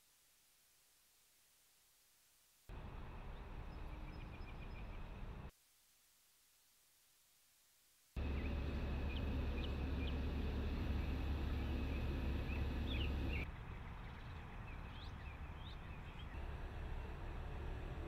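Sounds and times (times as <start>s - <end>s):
birds chirping: 8.2s - 17.8s
steady low rumble: 8.2s - 18.0s.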